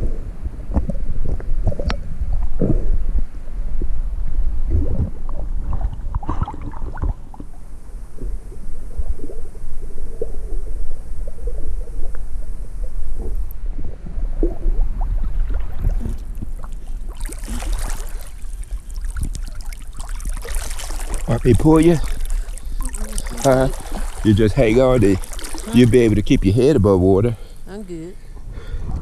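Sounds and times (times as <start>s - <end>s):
water sloshing and gurgling: 0.7s - 29.0s
swimmer splashing: 15.4s - 28.1s.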